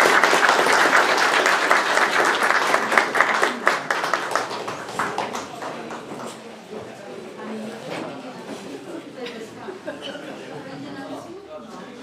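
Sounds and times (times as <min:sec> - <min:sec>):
crowd applauding: 0:00.0 - 0:06.3.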